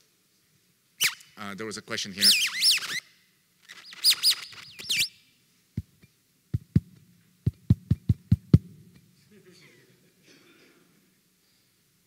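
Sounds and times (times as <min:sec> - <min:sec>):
high-pitched chirps and squeals: 0:01.0 - 0:01.4, 0:02.2 - 0:05.3.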